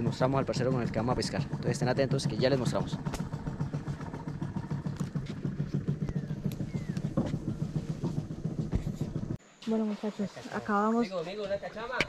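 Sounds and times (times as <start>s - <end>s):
small engine running: 0.0s - 9.4s.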